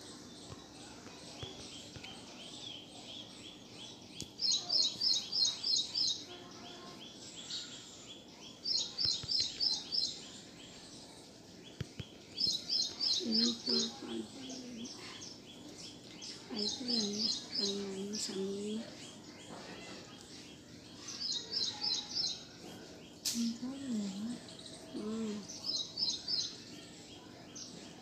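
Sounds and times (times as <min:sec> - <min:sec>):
bird chirping: 0:11.6 - 0:27.8.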